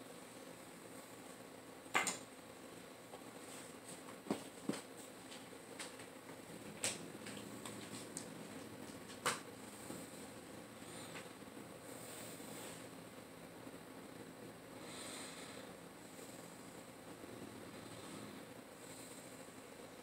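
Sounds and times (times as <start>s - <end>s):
knives set down on wooden floor: 2.0s - 2.2s.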